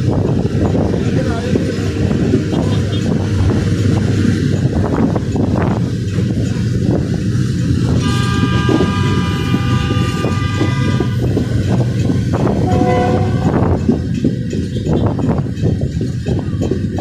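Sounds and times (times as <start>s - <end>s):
train wheels rumbling on rails: 0.0s - 17.0s
train horn: 7.8s - 11.5s, 12.5s - 13.8s
lower-pitched horn tone: 7.9s - 11.5s, 12.5s - 13.8s.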